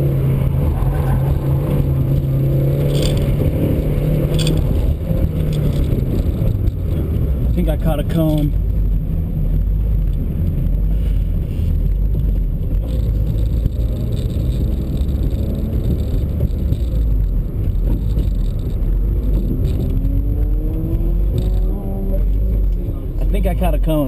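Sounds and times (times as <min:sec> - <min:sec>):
car engine under load: 0:00.0 - 0:24.0
road and tyre noise: 0:00.0 - 0:24.0.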